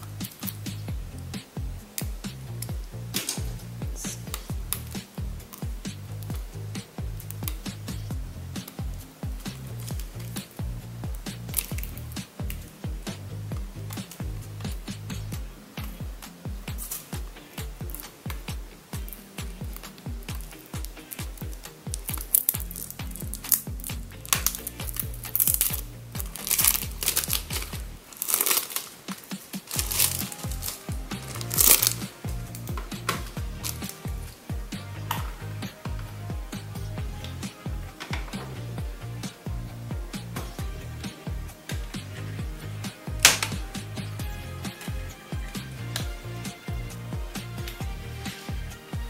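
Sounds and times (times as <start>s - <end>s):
electronic beat music: 0.0s - 49.0s
plastic wrapping crinkling: 21.9s - 23.6s, 24.2s - 34.1s.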